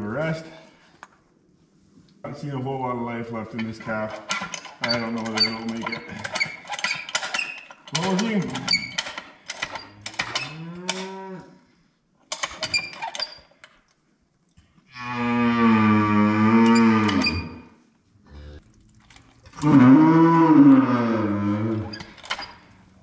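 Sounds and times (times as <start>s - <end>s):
cow bellowing: 14.9s - 17.6s, 19.5s - 22.0s.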